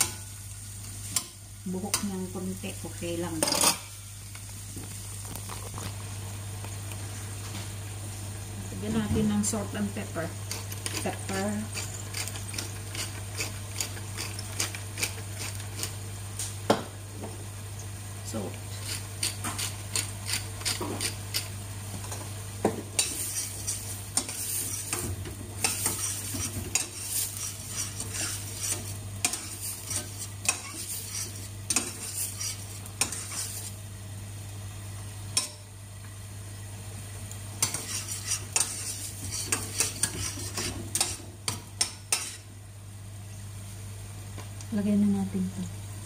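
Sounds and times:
utensil stirring in metal saucepan: 10.5 - 16.0, 23.0 - 33.8, 37.6 - 42.5.

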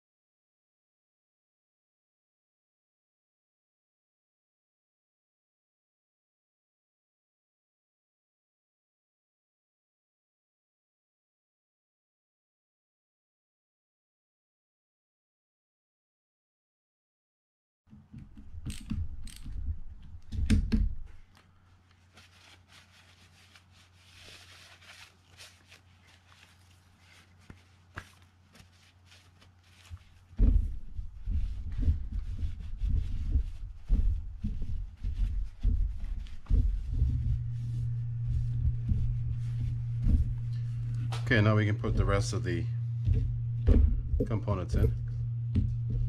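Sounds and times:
screwdriver and screws clicking: 18.6 - 19.6
paper towel rubbing reel: 21.8 - 46.0.

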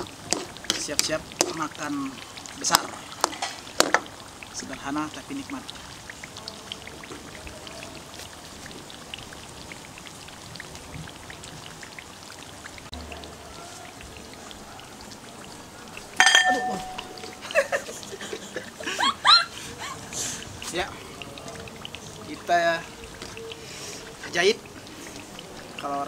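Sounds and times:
sauce sizzling in a wok: 0.0 - 26.0
metallic clank: 16.2 - 17.1.

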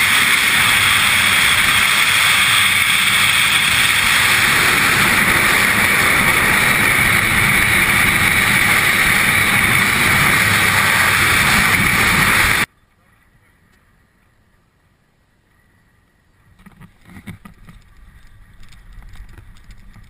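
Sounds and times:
freefall wind rushing: 0.0 - 12.7.

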